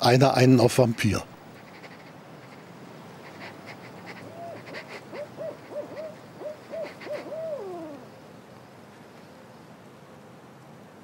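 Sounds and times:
owl hooting: 0:03.2 - 0:08.3.

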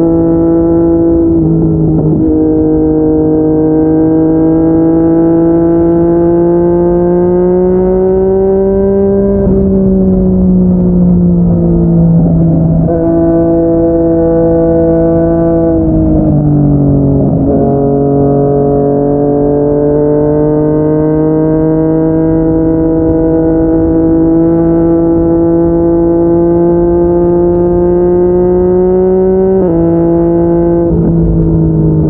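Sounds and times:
motorcycle engine accelerating: 0:00.0 - 0:32.0.

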